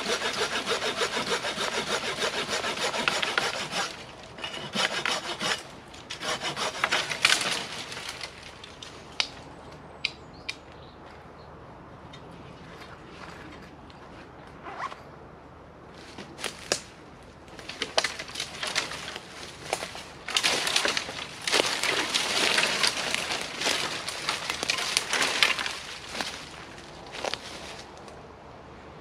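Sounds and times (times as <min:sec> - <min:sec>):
scraping and crackling: 0:00.0 - 0:09.3, 0:17.5 - 0:28.0
rustling and crunching handling: 0:17.5 - 0:28.1.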